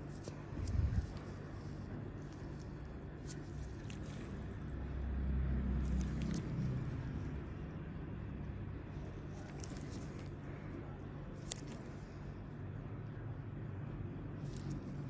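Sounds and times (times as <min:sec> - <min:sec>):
low background rumble: 0:00.0 - 0:15.0.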